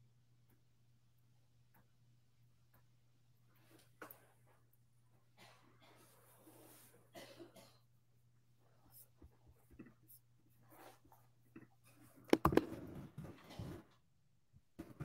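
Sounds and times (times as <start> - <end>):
small handling noises: 8.7 - 15.0
sharp clicks or knocks: 12.3 - 12.8.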